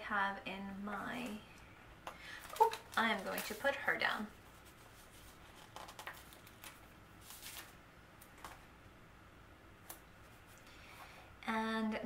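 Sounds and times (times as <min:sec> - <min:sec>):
sticker peeling rustles: 0:02.4 - 0:08.6.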